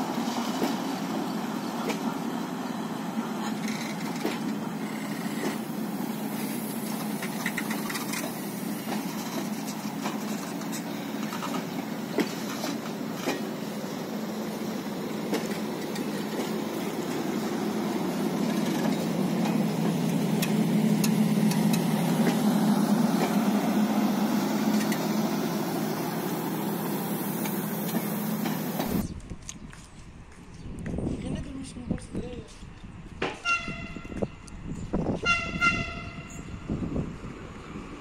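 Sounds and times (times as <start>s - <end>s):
train coaches rumbling: 0.0s - 29.2s
clanks and clicks from wheels: 6.9s - 13.5s.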